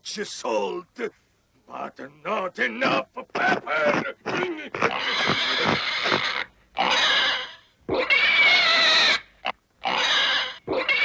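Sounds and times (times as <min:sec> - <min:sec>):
cartoon piglet squealing and crying: 0:03.4 - 0:11.0.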